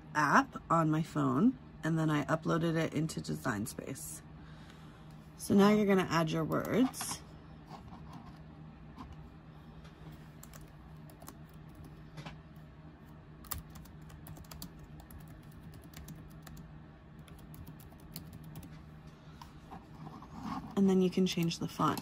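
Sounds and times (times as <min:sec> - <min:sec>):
laptop keyboard typing: 0:10.4 - 0:12.0, 0:13.4 - 0:18.8.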